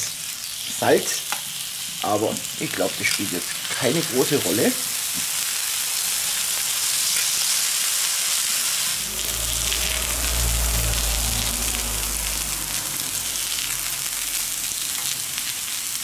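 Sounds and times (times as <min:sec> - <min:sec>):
meat sizzling on a hot plate: 0:00.0 - 0:09.0, 0:10.3 - 0:16.0
low rumble: 0:08.8 - 0:15.6.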